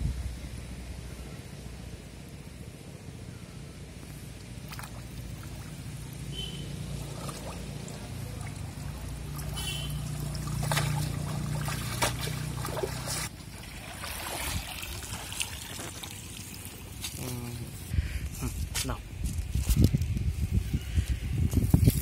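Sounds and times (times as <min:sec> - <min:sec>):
water splashing and sloshing: 0:04.2 - 0:17.9
water pouring and dripping: 0:06.9 - 0:17.2.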